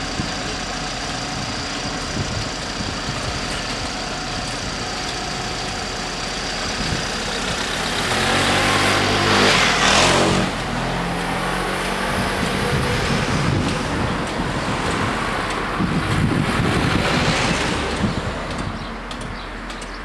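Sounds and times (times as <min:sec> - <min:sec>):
vehicles idling: 0:00.0 - 0:20.0
car passing: 0:07.5 - 0:18.9.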